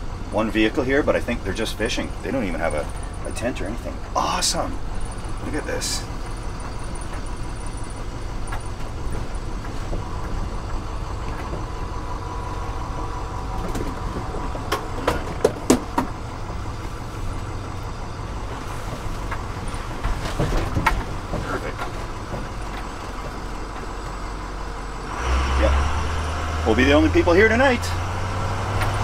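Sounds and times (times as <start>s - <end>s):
bus engine running: 0.0s - 29.0s
tires rolling over gravel: 0.0s - 29.0s
sharp rattles and knocks: 0.3s - 25.1s.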